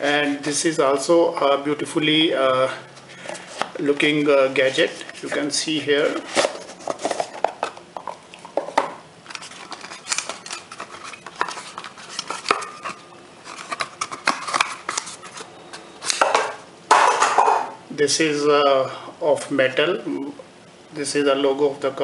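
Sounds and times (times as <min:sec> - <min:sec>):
cardboard box and charger handling: 0:06.0 - 0:07.8, 0:09.3 - 0:16.2.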